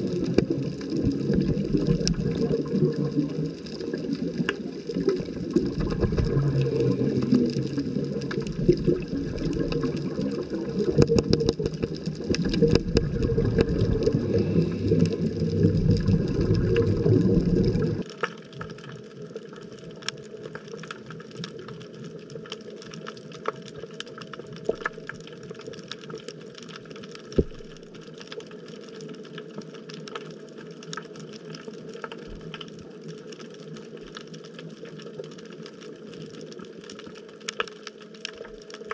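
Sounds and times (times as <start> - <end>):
steady underwater hiss: 0.0 - 18.1
underwater clicks: 0.0 - 18.2
underwater rush of moving water: 0.0 - 38.9.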